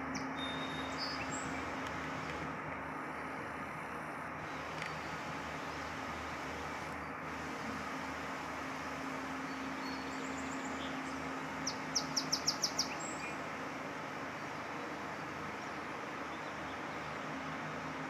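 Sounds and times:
outdoor background hiss: 0.0 - 18.0
bird chirping: 0.1 - 1.7, 9.5 - 13.4.

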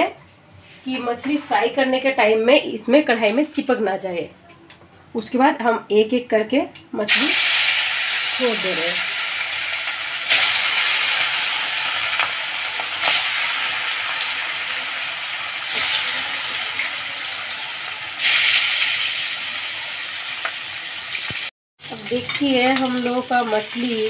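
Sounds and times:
fish sizzling in hot oil: 7.1 - 24.0.

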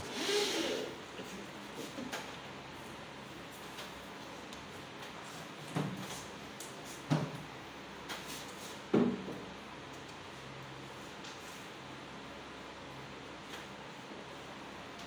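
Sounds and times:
sharp knocks on ceiling panels: 7.0 - 7.5, 8.9 - 9.5.

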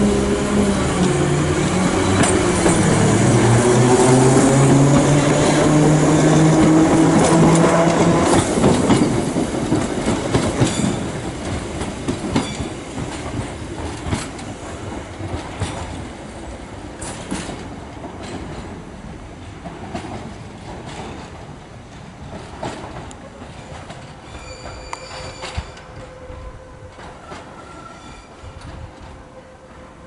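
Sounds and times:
electric train humming: 0.0 - 17.1
train wheels clacking over rail joints: 1.8 - 16.2, 17.0 - 18.8, 19.6 - 27.6.

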